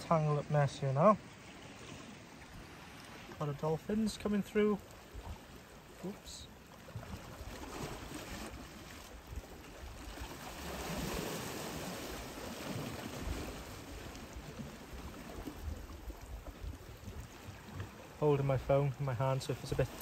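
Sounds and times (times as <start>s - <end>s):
sea water washing against rocks: 1.8s - 20.0s
wind rumbling on microphone: 6.9s - 18.0s.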